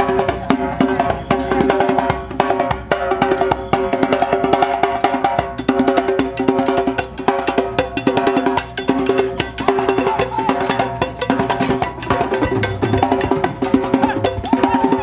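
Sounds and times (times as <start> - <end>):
goblet drum struck by hand: 0.0 - 15.0
hand drums: 0.0 - 15.0
drum kit: 5.2 - 15.0.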